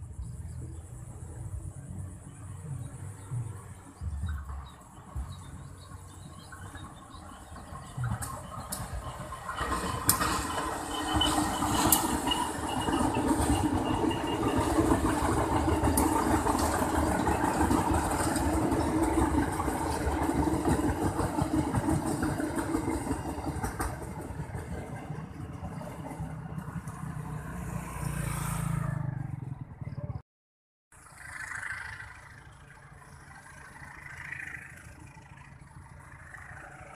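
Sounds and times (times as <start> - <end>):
locomotive engine running: 0.0 - 27.3, 31.0 - 36.9
train wheels clattering on rails: 3.4 - 27.2.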